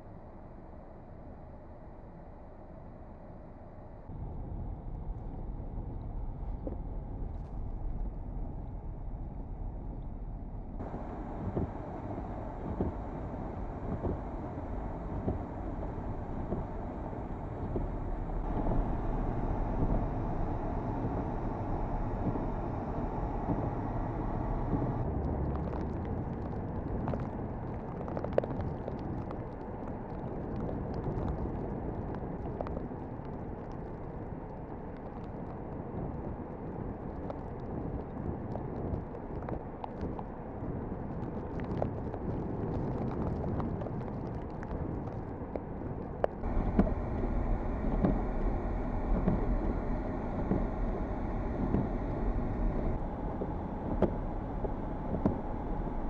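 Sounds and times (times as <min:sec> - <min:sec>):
car driving on snowy road: 0:00.1 - 0:56.0
gusty wind on microphone: 0:10.8 - 0:33.6, 0:35.8 - 0:56.0.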